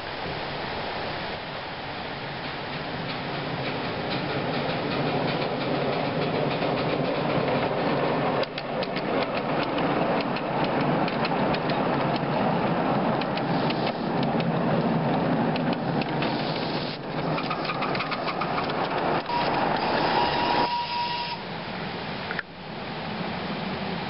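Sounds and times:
steam locomotive working: 1.8 - 24.0
wheels clattering on track: 2.3 - 21.4.

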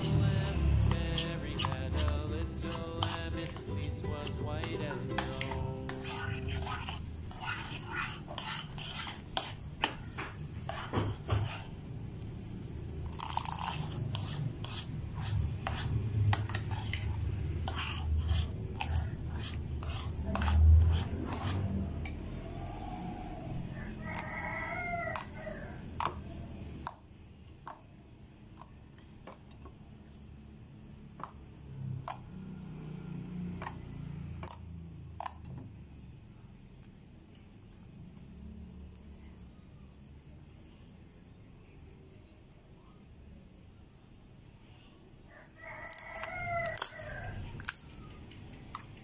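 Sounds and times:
metal spoon scraping glass dish: 0.0 - 11.7, 13.2 - 21.7.

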